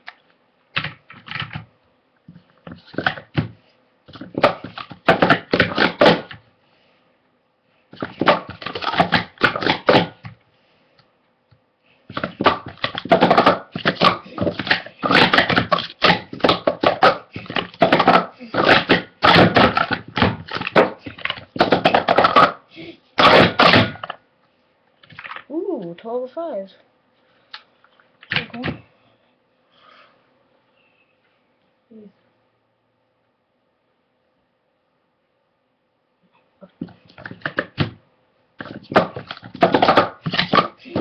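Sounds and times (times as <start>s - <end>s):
plastic cups clattering: 12.1s - 22.6s, 25.0s - 25.5s, 36.8s - 37.9s, 38.6s - 41.0s.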